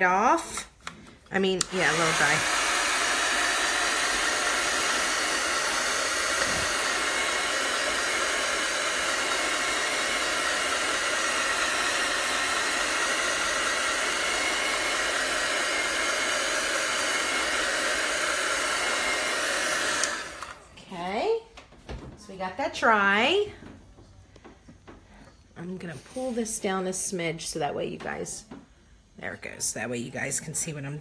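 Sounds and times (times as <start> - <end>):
hair dryer blowing: 0.0 - 20.7.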